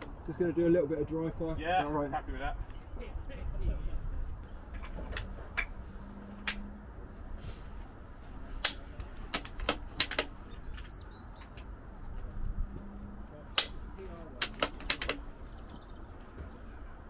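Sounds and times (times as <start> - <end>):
rifle bolt metallic clicks: 13.5 - 13.8, 14.4 - 15.2.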